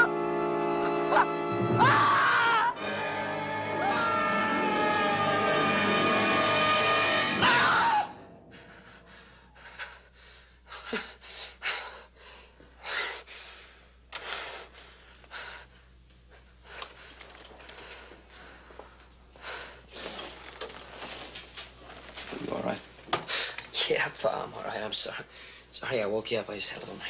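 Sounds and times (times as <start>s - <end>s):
burst of music: 0.0s - 8.4s.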